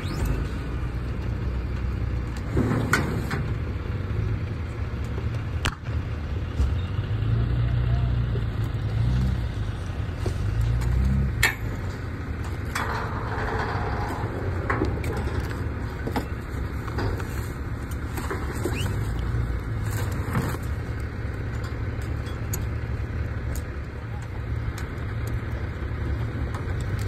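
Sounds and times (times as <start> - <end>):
vehicle engine running: 0.0 - 27.0
debris rustling and scraping: 9.7 - 27.0.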